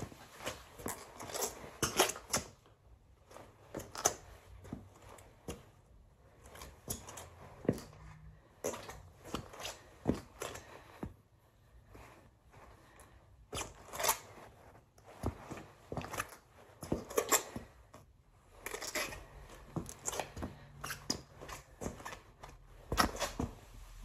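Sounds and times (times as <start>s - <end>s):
boots stepping and shuffling on floor: 0.0s - 2.5s, 6.5s - 11.2s, 11.8s - 17.8s, 18.6s - 24.0s.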